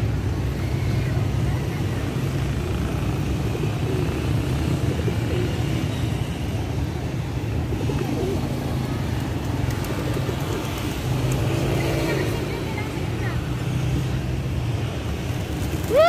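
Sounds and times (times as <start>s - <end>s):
low rumble of road traffic: 0.0s - 16.0s
pigeons cooing: 3.4s - 5.8s, 7.6s - 8.9s, 9.6s - 11.3s.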